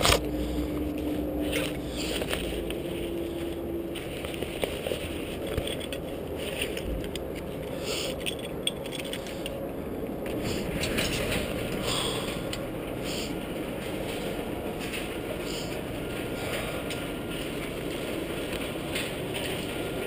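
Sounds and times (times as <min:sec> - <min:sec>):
rummaging in a backpack: 0:00.0 - 0:20.0
garage door opener running: 0:08.4 - 0:20.0.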